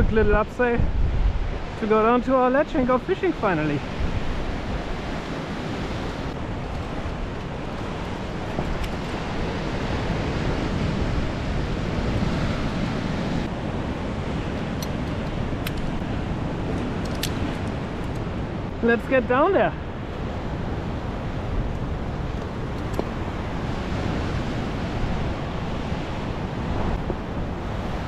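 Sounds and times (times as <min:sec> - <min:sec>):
ocean surf breaking on rocks: 0:00.0 - 0:28.0
wind buffeting microphone: 0:00.0 - 0:28.0
light clicks: 0:14.8 - 0:16.0.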